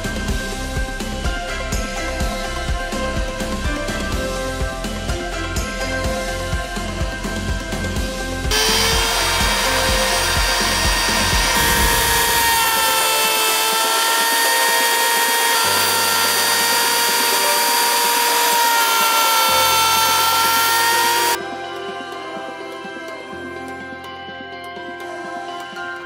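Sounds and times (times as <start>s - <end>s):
wood router high whine: 8.4s - 21.4s.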